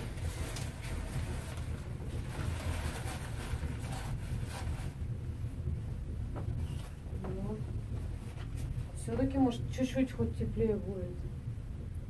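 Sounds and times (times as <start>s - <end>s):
fabric rustling: 0.0s - 5.1s, 6.4s - 9.1s
steady low rumble: 0.0s - 12.0s.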